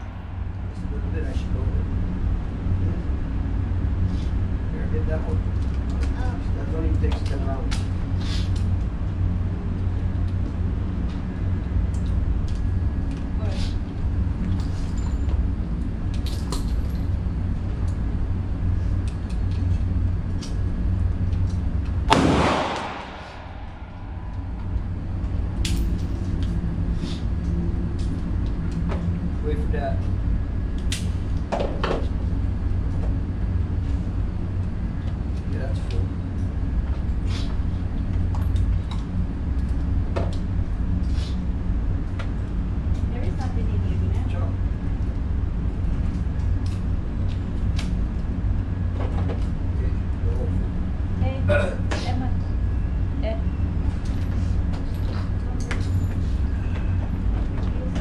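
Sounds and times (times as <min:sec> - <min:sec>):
low hum: 0:00.0 - 0:58.0
ventilation low rumble: 0:00.0 - 0:58.0
pistol shot indoors: 0:22.1 - 0:24.3.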